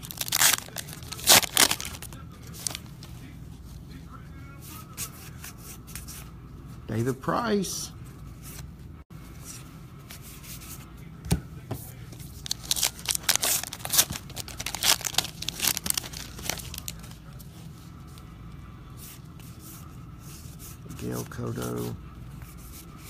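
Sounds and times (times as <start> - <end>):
wrapper tearing and crinkling: 0.0 - 2.8, 12.4 - 17.1.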